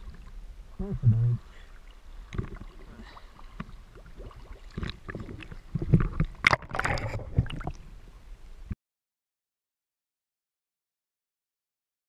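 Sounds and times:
water sloshing against camera: 0.0s - 8.1s
underwater splashing and gurgling: 0.0s - 8.2s.

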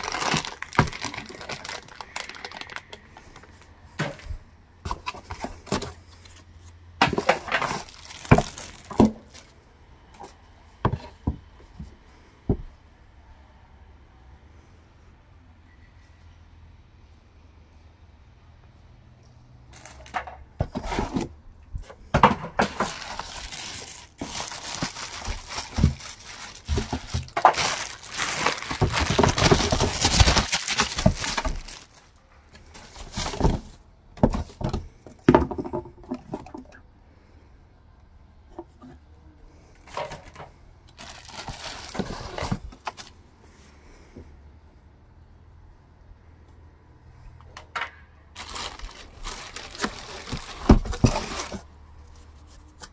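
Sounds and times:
plastic bags crinkling: 0.0s - 4.0s, 4.9s - 9.6s, 19.7s - 21.3s, 22.6s - 33.8s, 39.8s - 43.2s, 48.3s - 52.9s
cardboard knocks and scrapes: 20.6s - 21.4s.

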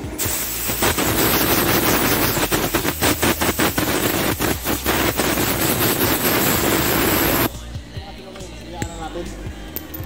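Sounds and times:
air blow gun hissing: 0.0s - 7.5s.

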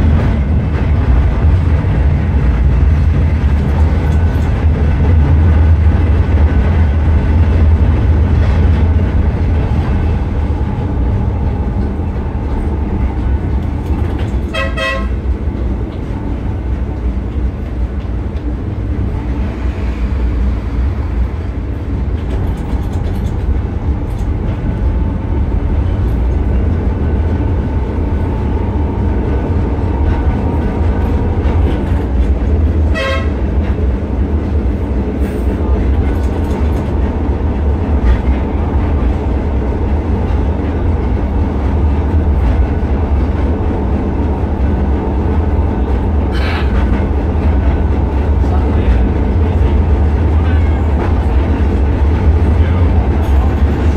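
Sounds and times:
tram rumbling on rails: 0.0s - 53.9s
tram warning toot: 9.4s - 15.8s, 19.0s - 33.9s, 45.0s - 53.9s.

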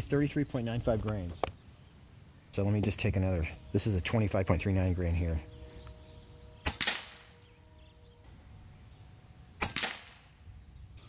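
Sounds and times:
air rifle shots cracking: 6.6s - 7.3s, 9.6s - 10.4s.

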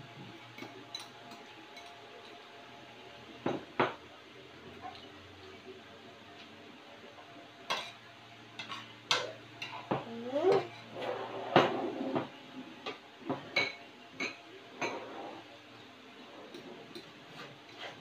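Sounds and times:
cutlery clinking on plates: 0.5s - 2.4s, 7.7s - 8.0s, 8.6s - 15.2s, 16.4s - 18.0s.

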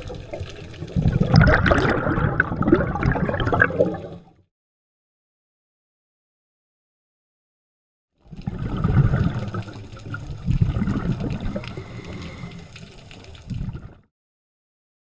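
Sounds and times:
underwater water gurgling: 0.0s - 4.4s, 8.2s - 14.1s.

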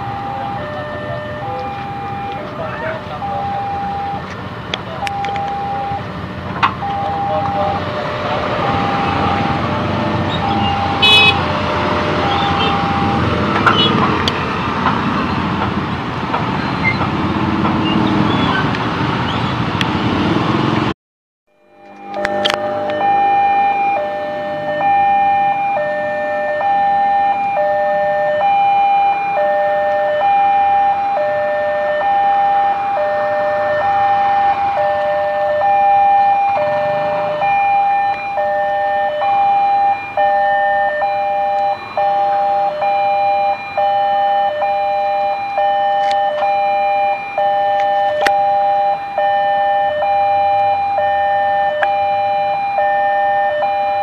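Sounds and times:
level-crossing two-tone alarm chime: 0.0s - 4.2s, 5.0s - 6.0s, 6.8s - 7.8s, 8.6s - 11.3s, 12.2s - 13.3s, 21.6s - 54.0s
faint motorbike traffic: 0.0s - 20.9s.

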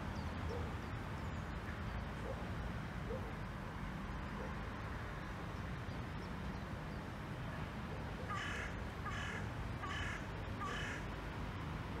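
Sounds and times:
crow cawing: 8.3s - 11.0s.

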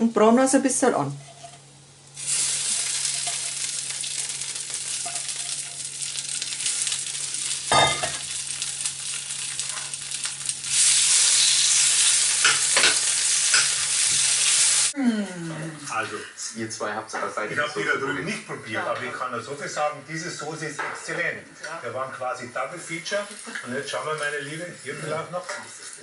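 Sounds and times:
vegetables sizzling in frying pan: 1.2s - 15.0s, 22.5s - 26.0s.

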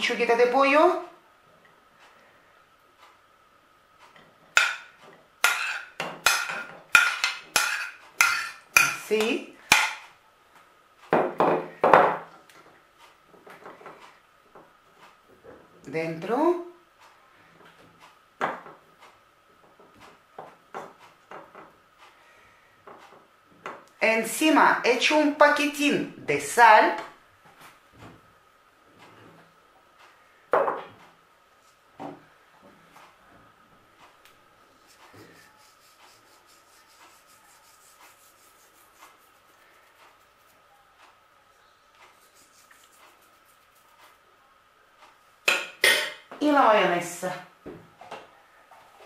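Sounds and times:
metal spoon knocking on metal: 5.5s - 9.0s.

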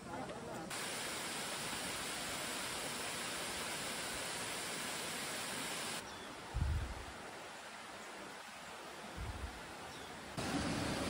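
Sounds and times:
waterfall rushing: 0.7s - 6.0s.

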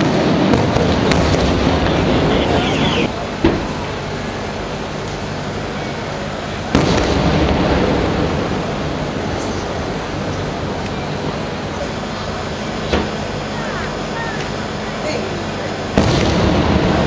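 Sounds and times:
loud firework bang: 0.0s - 4.2s, 6.7s - 10.3s, 16.0s - 17.0s.

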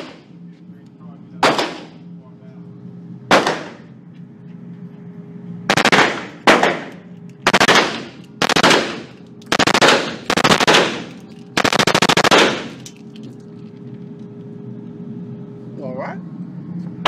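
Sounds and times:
automatic gunfire bursts indoors: 7.5s - 12.8s.

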